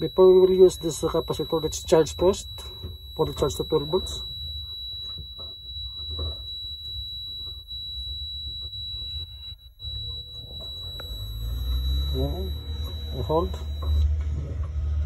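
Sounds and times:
high-pitched electronic tone: 0.0s - 14.1s.

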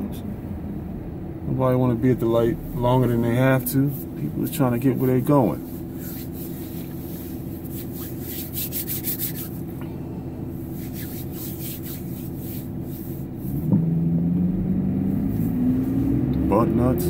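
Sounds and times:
car hum: 0.0s - 17.0s
hands rubbing together: 3.9s - 9.8s, 10.6s - 13.7s.

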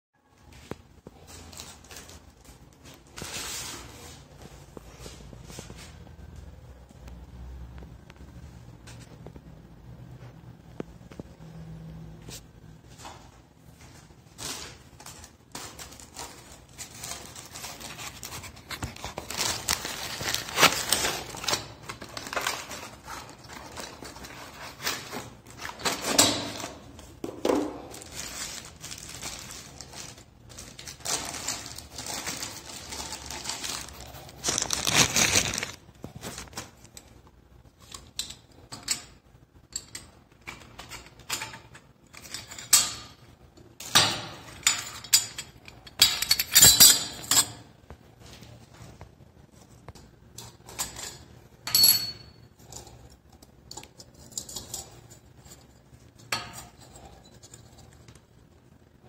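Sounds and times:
plastic wrapping crinkling: 13.8s - 37.9s.

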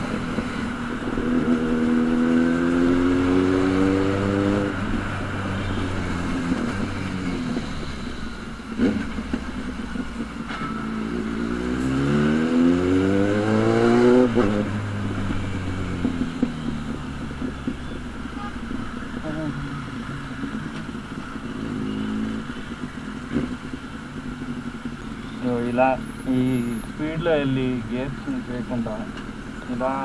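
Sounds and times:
motorcycle engine revving: 0.0s - 30.0s
exhaust pop crack: 8.7s - 11.0s, 14.2s - 19.3s.

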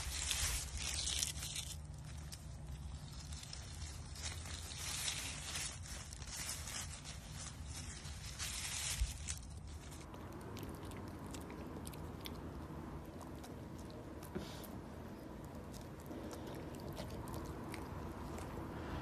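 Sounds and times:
dogs rustling through dry leaves: 0.0s - 10.2s.

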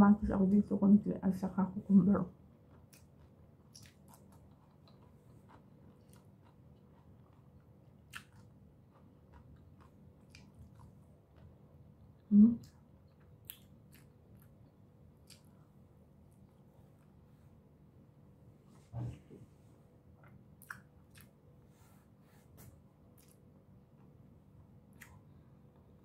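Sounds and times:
low hum-like voiced sound: 0.0s - 2.4s, 12.2s - 12.8s, 18.6s - 19.8s
person chewing food: 2.4s - 17.2s, 20.1s - 21.5s, 22.7s - 26.0s.

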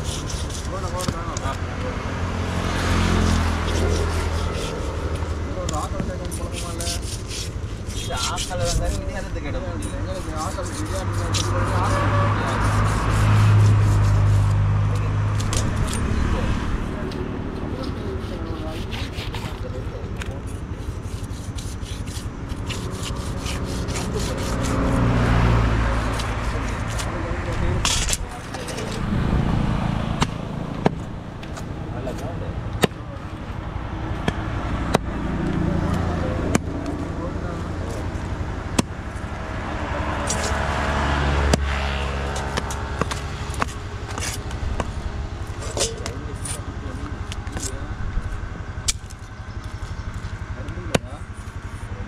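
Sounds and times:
knife scraping fish: 0.0s - 1.3s, 3.2s - 9.2s, 9.8s - 14.6s, 17.7s - 27.2s
low engine hum: 0.0s - 52.0s.

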